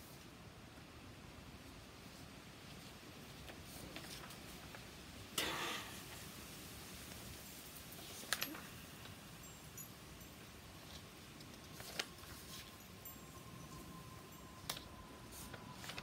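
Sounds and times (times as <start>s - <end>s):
low steady hiss: 0.0s - 16.0s
paper rustling: 2.7s - 4.9s, 10.8s - 12.8s, 14.6s - 16.0s.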